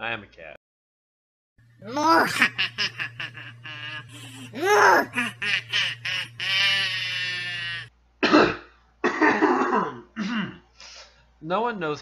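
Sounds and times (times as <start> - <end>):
man doing cartoon laugh: 1.9 - 7.9
cough: 8.2 - 10.6
throat clearing: 8.2 - 10.6.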